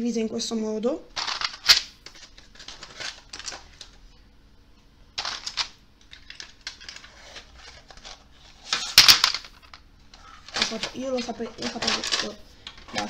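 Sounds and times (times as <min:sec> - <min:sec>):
pencils clicking in metal tin: 0:05.2 - 0:09.8, 0:10.5 - 0:13.0.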